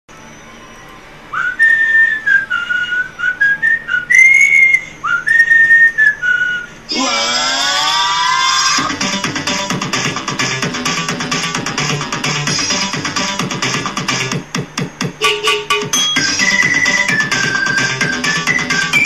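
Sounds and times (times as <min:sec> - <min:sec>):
whistled melody: 0:00.1 - 0:06.8, 0:15.2 - 0:19.0
dense music: 0:08.8 - 0:19.0.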